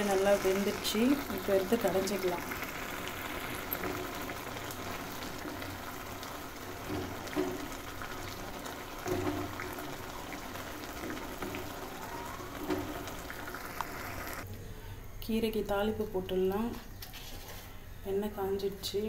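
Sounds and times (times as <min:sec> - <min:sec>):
food simmering and bubbling: 0:00.0 - 0:14.5.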